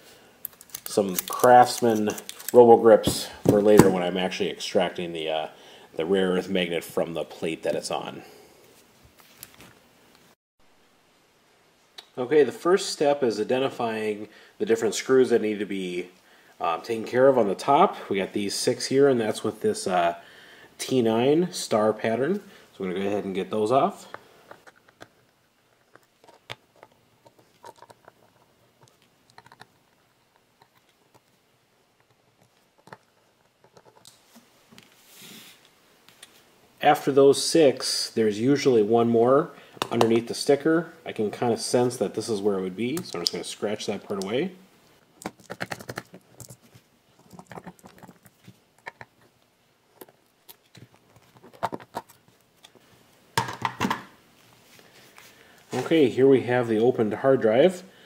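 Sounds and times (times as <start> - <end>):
handling noise: 0.5 - 4.3, 45.0 - 56.1.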